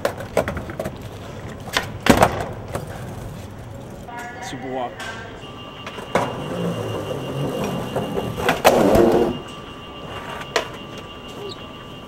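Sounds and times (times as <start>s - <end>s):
skateboard clacks: 0.0s - 3.6s, 5.8s - 9.4s
skateboard wheels rumbling: 0.0s - 4.1s, 5.8s - 12.0s.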